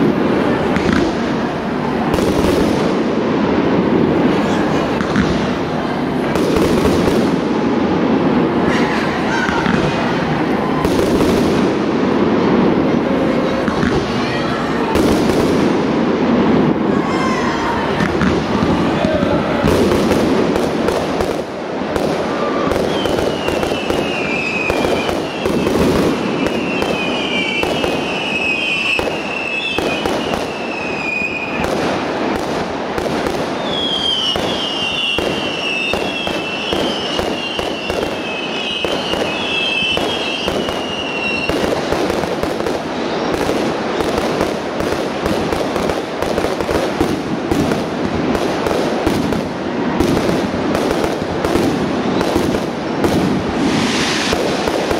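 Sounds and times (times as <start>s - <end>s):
firework shell bursts and crackling: 0.0s - 17.0s, 17.8s - 54.9s
high wavering firework whistle: 22.2s - 31.8s, 33.3s - 42.0s, 53.0s - 54.9s.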